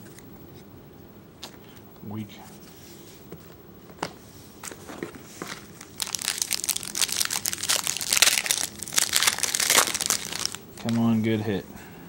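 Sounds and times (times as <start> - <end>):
wrapper crinkling and tearing: 5.4 - 11.1.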